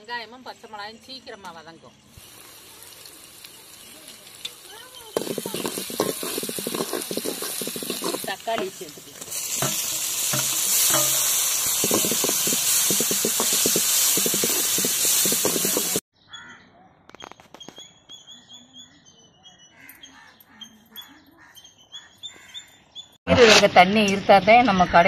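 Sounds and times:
tomatoes sizzling in hot oil: 0:02.1 - 0:16.0
stirring scraping clicks: 0:03.4 - 0:16.0.

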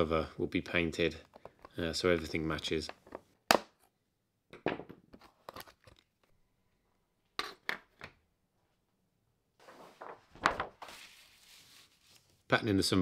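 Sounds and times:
soft rustle: 0:09.6 - 0:12.5.

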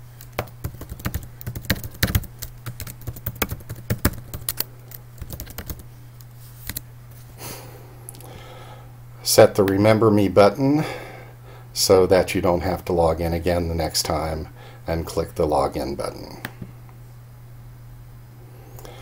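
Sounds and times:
typing on computer keyboard: 0:00.4 - 0:05.8.

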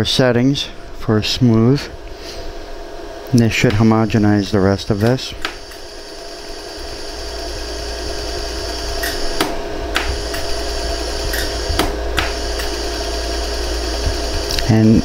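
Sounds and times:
laser welder hum: 0:01.0 - 0:15.0
laser pulse clicks: 0:04.9 - 0:06.0, 0:08.6 - 0:15.0.

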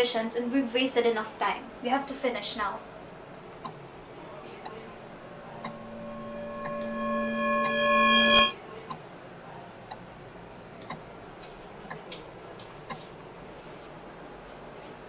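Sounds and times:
held musical tone: 0:04.6 - 0:08.6.

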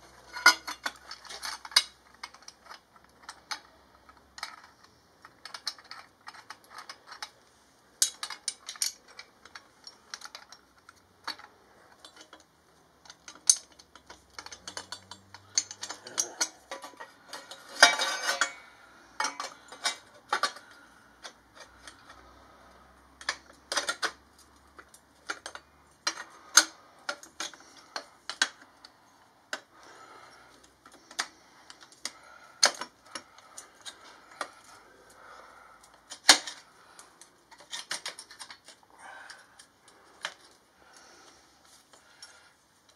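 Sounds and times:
metal pipes and tools clinking: 0:00.0 - 0:07.4, 0:08.0 - 0:42.9
metal rattle: 0:13.0 - 0:22.2.

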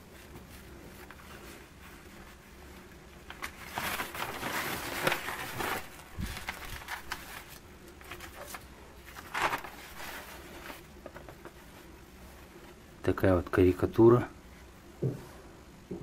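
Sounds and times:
newspaper rustling: 0:00.0 - 0:12.7.

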